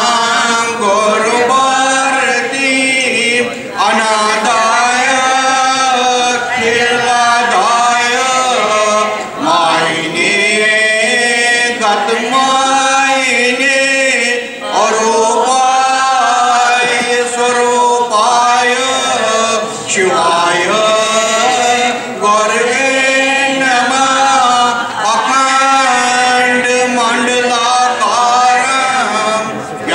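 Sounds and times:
voices chanting a hymn: 0.0s - 29.9s.

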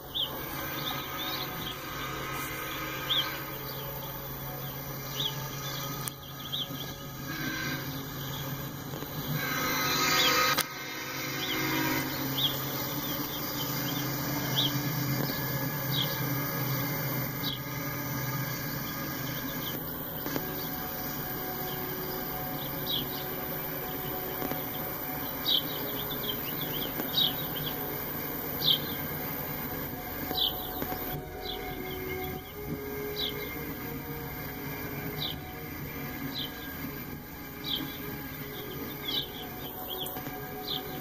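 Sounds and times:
freight train wheels rumbling: 0.0s - 41.0s.

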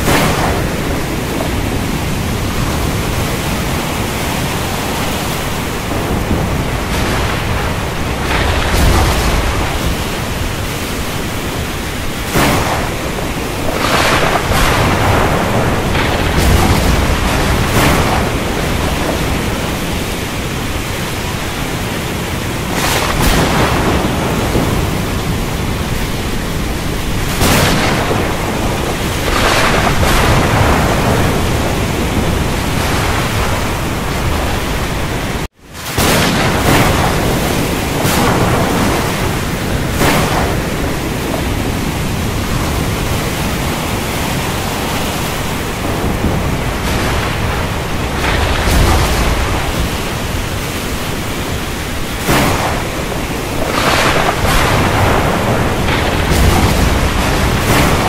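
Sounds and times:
heavy rain hissing: 0.0s - 58.0s
thunder rumbling: 0.0s - 58.0s.

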